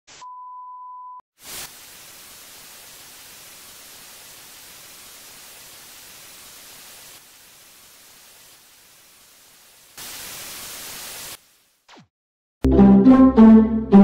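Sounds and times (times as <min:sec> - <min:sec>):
tv static hiss: 0:01.4 - 0:12.0.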